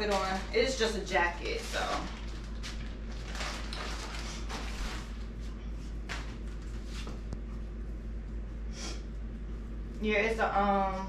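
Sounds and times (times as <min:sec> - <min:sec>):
plastic bag crinkling: 0:00.0 - 0:05.4.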